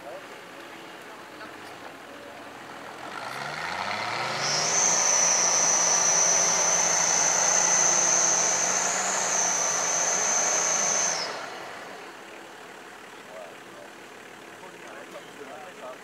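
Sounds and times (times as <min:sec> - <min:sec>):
truck engine revving: 0:00.0 - 0:16.0
high-pitched whine: 0:02.9 - 0:12.2.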